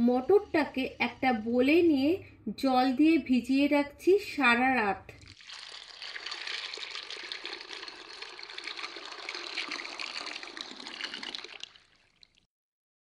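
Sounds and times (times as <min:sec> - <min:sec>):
water pouring into bowl: 0:05.2 - 0:12.5.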